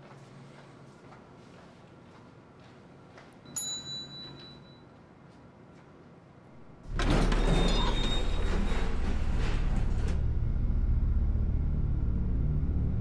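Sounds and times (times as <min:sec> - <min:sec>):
elevator arrival chime: 0:03.5 - 0:04.9
loud low rumble: 0:09.1 - 0:13.0.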